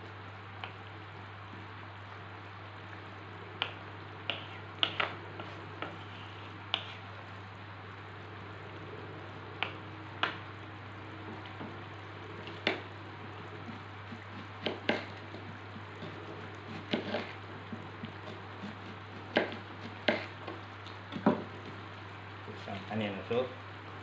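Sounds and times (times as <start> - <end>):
curry simmering hum and hiss: 0.0 - 24.0
knife slicing onion on board: 13.7 - 17.4, 18.0 - 20.4.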